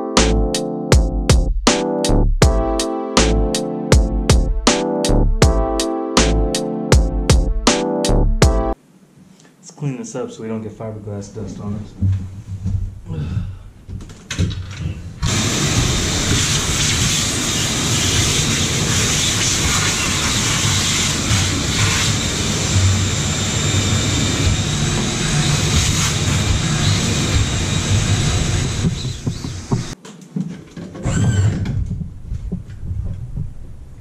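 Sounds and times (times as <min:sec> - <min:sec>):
vacuum cleaner running: 0:15.2 - 0:30.0.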